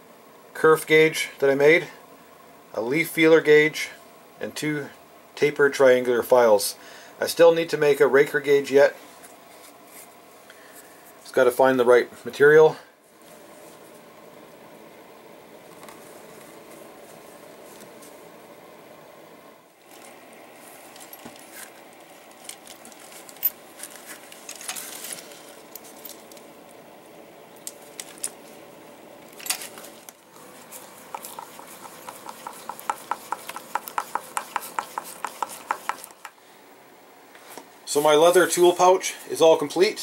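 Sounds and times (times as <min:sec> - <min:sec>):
leather tool clicks and scrapes: 0:30.6 - 0:36.3.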